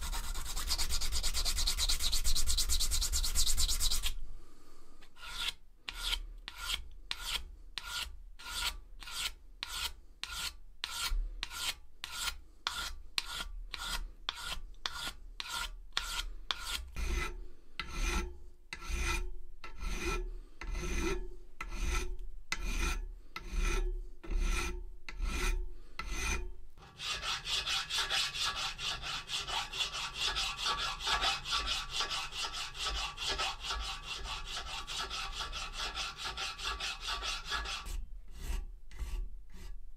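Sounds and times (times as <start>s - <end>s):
file rasping on steel: 0.0s - 4.2s, 5.2s - 39.8s
hand sanding steel: 0.0s - 4.2s, 26.8s - 39.8s.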